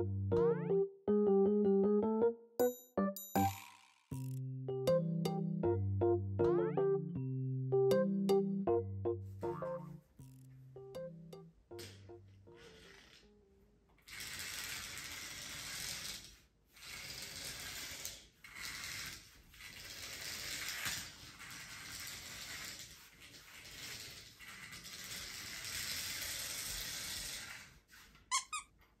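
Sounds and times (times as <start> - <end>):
plastic wheels rattling: 14.0 - 27.8
toy motor and gears whirring: 14.0 - 28.7.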